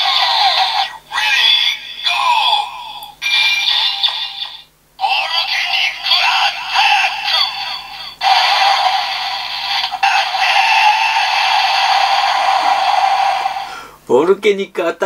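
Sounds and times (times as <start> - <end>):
toy synthesized sound effects: 3.2 - 12.2.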